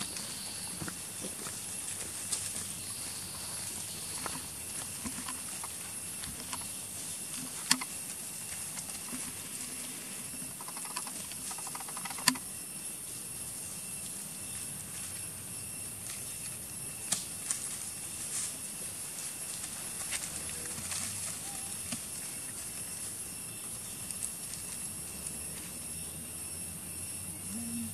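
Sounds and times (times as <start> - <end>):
steady high hiss: 0.0 - 27.9
sharp clicks: 10.6 - 12.5.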